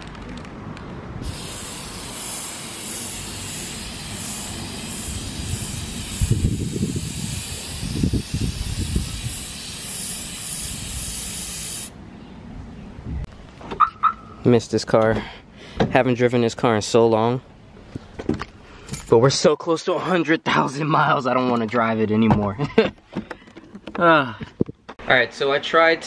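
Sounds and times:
aerosol spray hissing: 1.2s - 11.9s.

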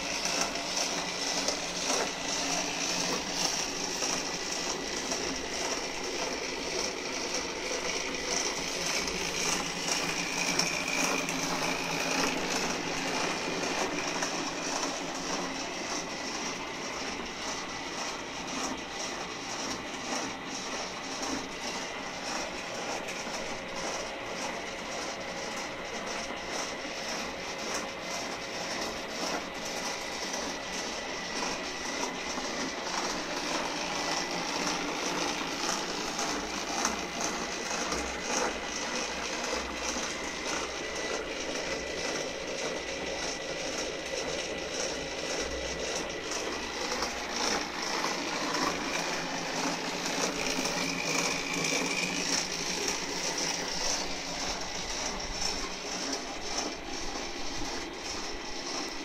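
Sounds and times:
machine motor hum: 0.0s - 59.0s.

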